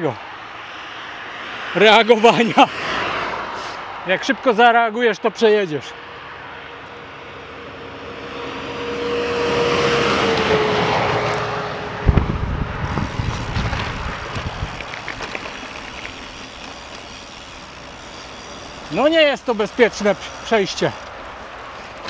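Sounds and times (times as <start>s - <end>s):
vehicle passing at speed: 0.4s - 4.0s, 6.1s - 14.8s
low rumbling: 11.8s - 19.0s.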